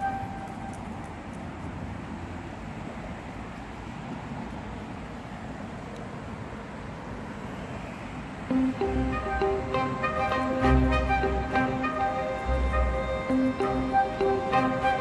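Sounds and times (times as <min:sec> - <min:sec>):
distant road traffic rumble: 0:00.0 - 0:15.0
background music: 0:08.5 - 0:15.0.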